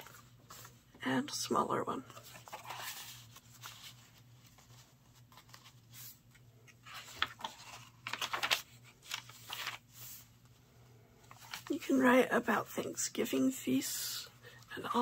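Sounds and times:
paper pages rustling: 0.0 - 0.9, 2.0 - 10.6, 11.2 - 13.4.

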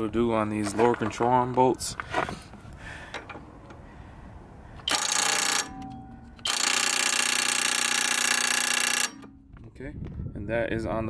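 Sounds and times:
impact wrench hammering: 4.9 - 9.6.

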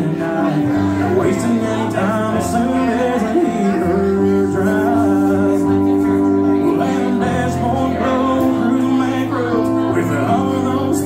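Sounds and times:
electronic keyboard chords: 0.0 - 11.0
man singing: 0.0 - 11.0.

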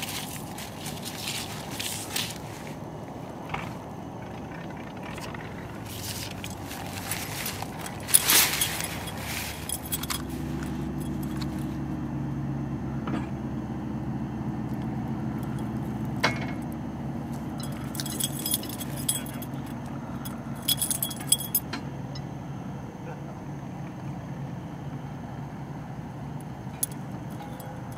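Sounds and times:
cat collar jingling: 0.0 - 2.8, 5.0 - 11.8, 15.4 - 15.8, 17.4 - 21.6, 26.8 - 27.9
steady low hum: 0.0 - 27.9.

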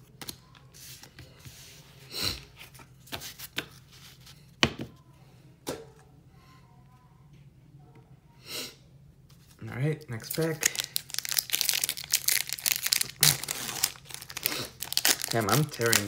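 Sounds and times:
card pack rustle: 10.2 - 16.0.

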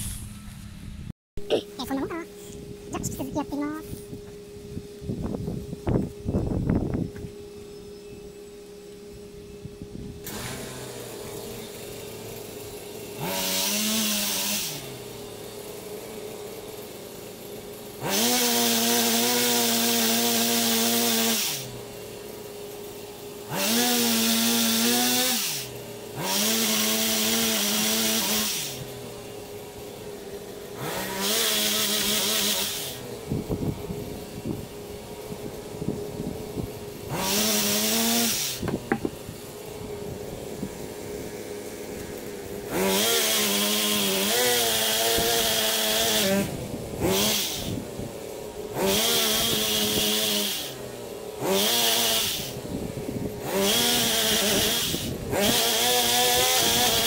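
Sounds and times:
pole chainsaw revving: 10.1 - 57.0.

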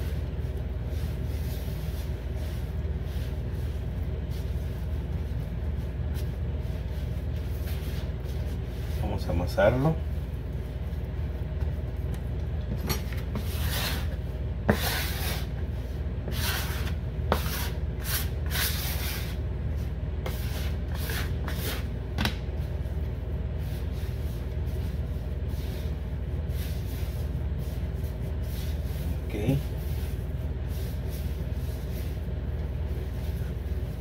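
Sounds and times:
hands kneading dough on counter: 0.0 - 34.0
steady low hum: 0.0 - 34.0
bench scraper scraping surface: 13.3 - 15.5, 16.3 - 19.4, 20.2 - 21.9.

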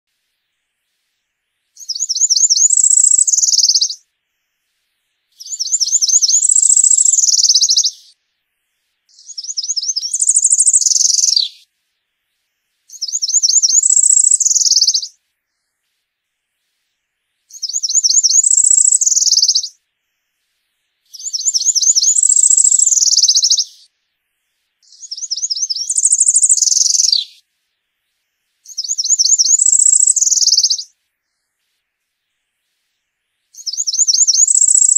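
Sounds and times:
warbler singing high trills: 1.8 - 4.0, 5.3 - 8.2, 9.1 - 11.6, 12.9 - 15.2, 17.5 - 19.8, 21.1 - 23.9, 24.8 - 27.4, 28.6 - 30.9, 33.6 - 34.9.

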